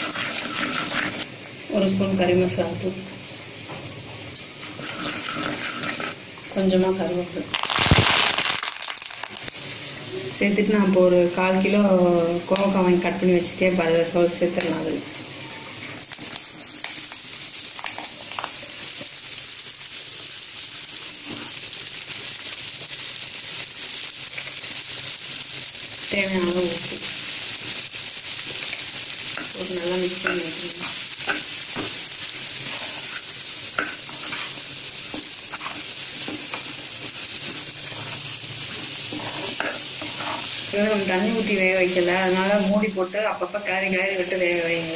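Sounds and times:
vegetables sizzling in oil: 0:00.0 - 0:44.9
spatula scraping and tapping pan: 0:29.4 - 0:32.0, 0:32.6 - 0:40.6.

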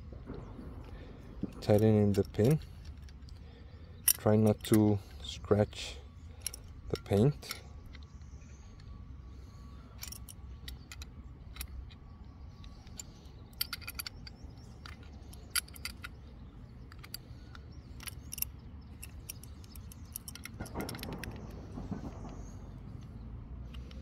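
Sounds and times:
spanner clicking on metal: 0:12.6 - 0:16.2, 0:16.8 - 0:22.3.

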